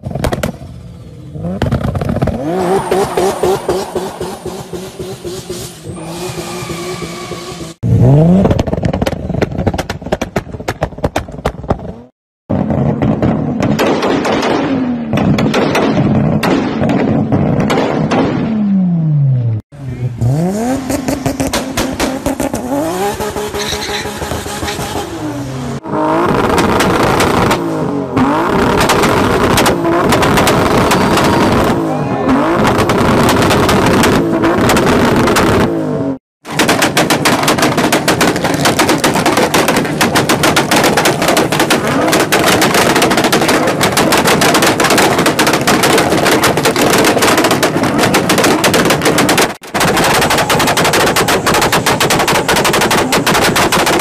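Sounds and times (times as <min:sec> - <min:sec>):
revving car engines: 0:00.0 - 0:09.8, 0:11.8 - 0:54.0
exhaust bangs: 0:00.0 - 0:54.0
rapid exhaust pops crackling: 0:08.4 - 0:18.1, 0:36.5 - 0:54.0.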